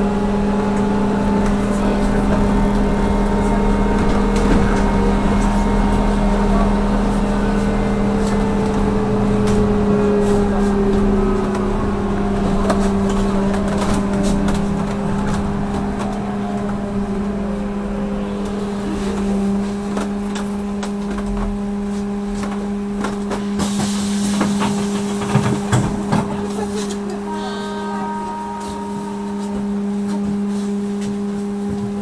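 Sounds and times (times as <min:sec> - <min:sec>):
trolleybus electric hum and whine: 0:00.0 - 0:32.0
rattles and knocks from bus body: 0:08.0 - 0:16.9, 0:19.0 - 0:27.2, 0:29.6 - 0:32.0.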